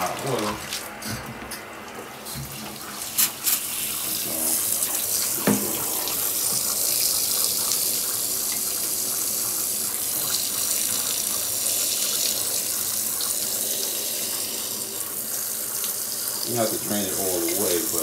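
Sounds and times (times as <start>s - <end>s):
water splashing into tub: 2.3s - 8.8s.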